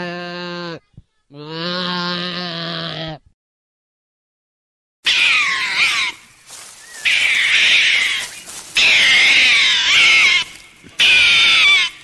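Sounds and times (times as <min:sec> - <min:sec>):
meerkats calling shrilly: 0:05.0 - 0:12.0.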